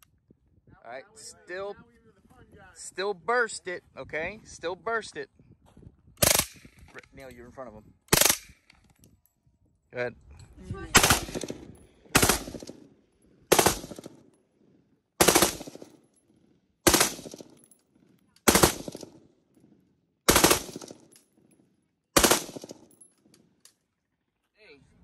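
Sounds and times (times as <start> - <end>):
automatic rifle bursts: 11.0 - 12.7, 15.2 - 15.9, 16.9 - 17.4, 18.4 - 19.1, 20.3 - 21.0, 22.2 - 22.8.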